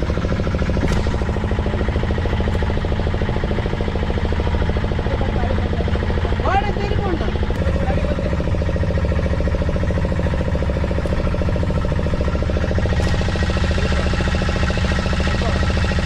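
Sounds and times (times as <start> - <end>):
boat engine pulsing: 0.0 - 16.0.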